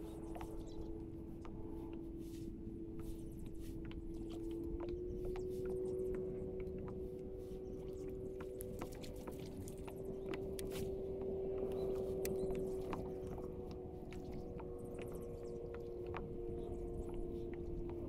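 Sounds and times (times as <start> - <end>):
light clicks: 8.4 - 16.3.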